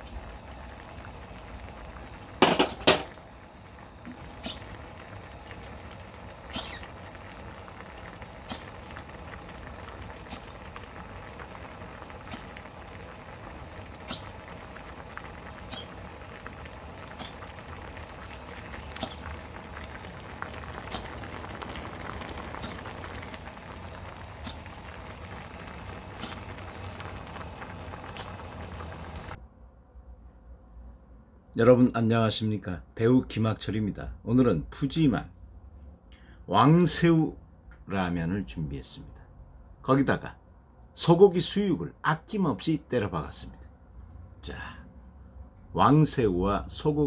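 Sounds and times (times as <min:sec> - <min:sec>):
broth bubbling: 0:00.0 - 0:29.4
sharp pops: 0:18.8 - 0:23.5, 0:24.2 - 0:24.7, 0:26.2 - 0:26.5.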